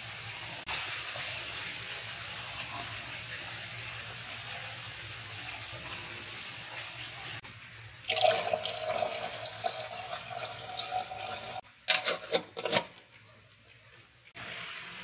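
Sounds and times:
tap water pouring into kettle: 8.0s - 11.6s
metal lid clinking: 11.9s - 13.0s.

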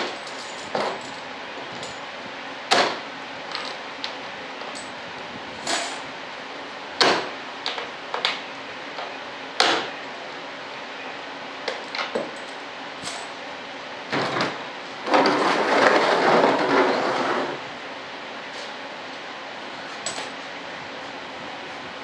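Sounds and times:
sharp knocks and cracks: 2.7s - 3.0s, 7.0s - 8.4s, 9.6s - 9.9s.

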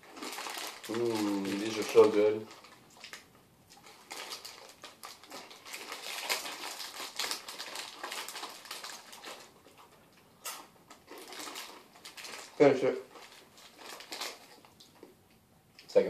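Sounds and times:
chips being chewed: 0.0s - 15.1s
foil snack bags crinkling: 0.0s - 15.1s.

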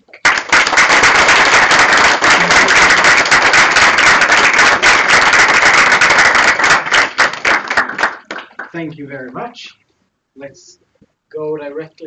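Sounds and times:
audience applause: 0.0s - 8.8s.

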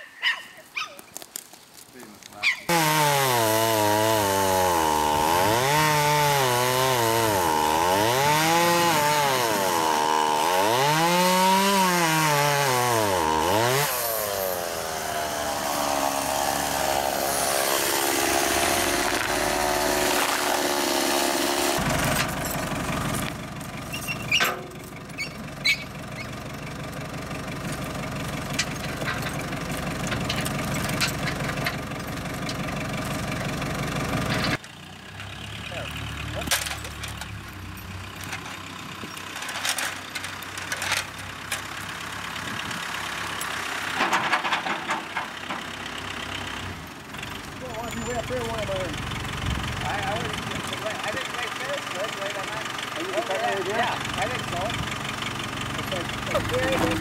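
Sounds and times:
chainsaw cutting wood: 2.7s - 26.4s, 27.0s - 34.6s
tractor engine running: 2.7s - 57.0s.

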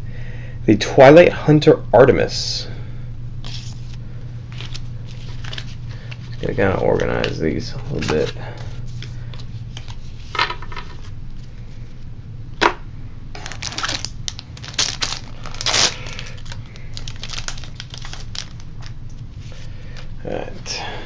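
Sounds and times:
foil wrapper crinkling and tearing: 3.5s - 8.4s, 13.4s - 20.1s.

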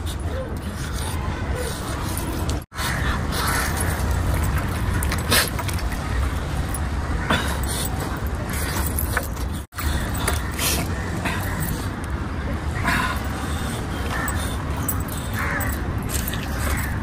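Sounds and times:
metal bracelets jangling: 3.8s - 6.9s, 7.6s - 12.1s, 14.0s - 17.0s.

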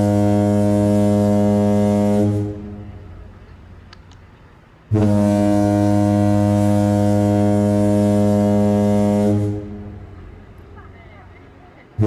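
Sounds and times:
ship's horn blast: 0.0s - 3.3s, 4.9s - 10.6s.

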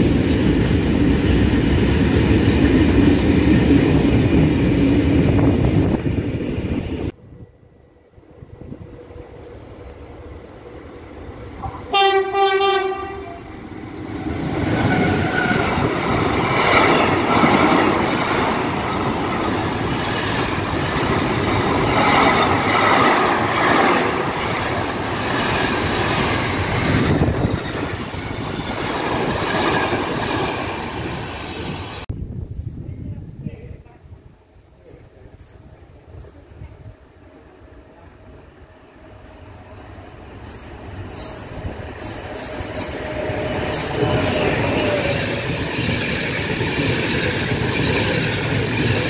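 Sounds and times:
freight train rumbling past: 0.0s - 49.0s
train horn blast: 11.6s - 13.6s.

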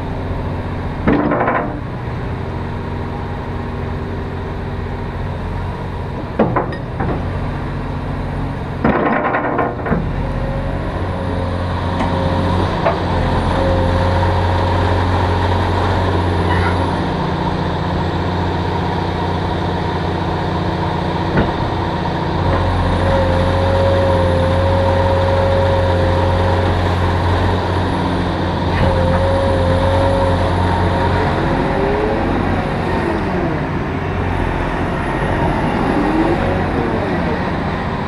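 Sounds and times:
excavator diesel engine hum: 0.0s - 38.0s
hydraulic whine: 8.8s - 38.0s.

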